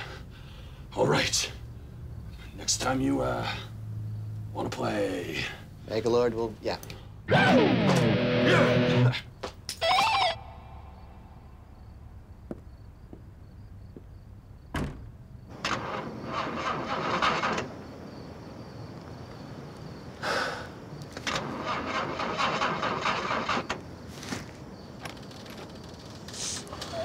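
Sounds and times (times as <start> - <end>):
car door shutting: 14.7 - 15.9
car starter cranking engine: 15.5 - 17.9, 21.2 - 23.9.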